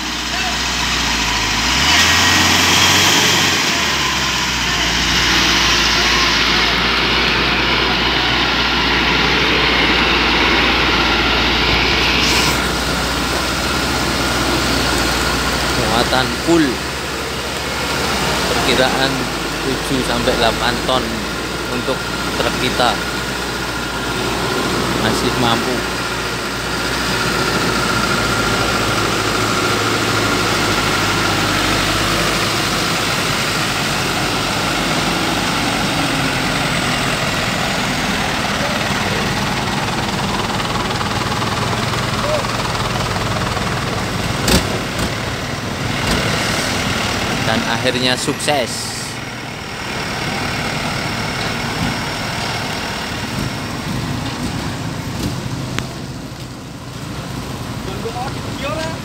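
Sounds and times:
truck diesel engine under load: 0.0 - 59.0.

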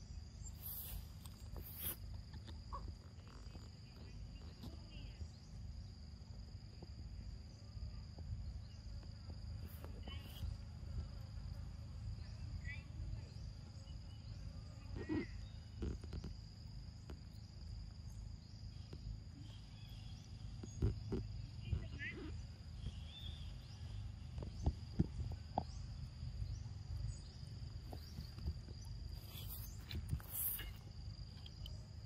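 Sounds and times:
high-pitched insect drone: 18.1 - 32.0.

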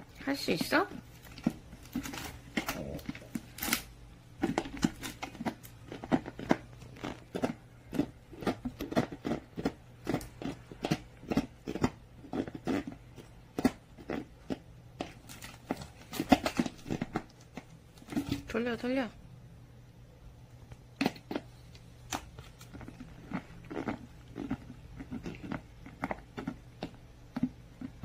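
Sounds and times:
dog chewing plastic bottle: 4.4 - 14.3, 15.0 - 18.5.

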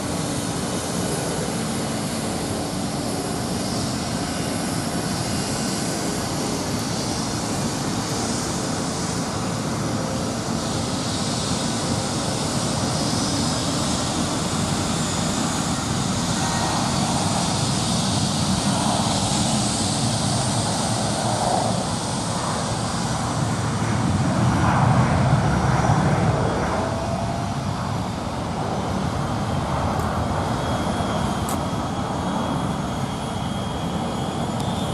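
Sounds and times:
jet engine rushing: 0.0 - 34.9.

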